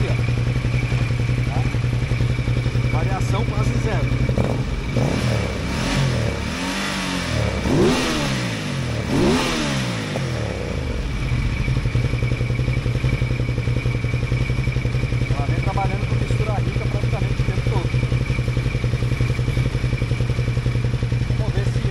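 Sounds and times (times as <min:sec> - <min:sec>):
motorcycle engine idling and revving: 0:00.0 - 0:21.9.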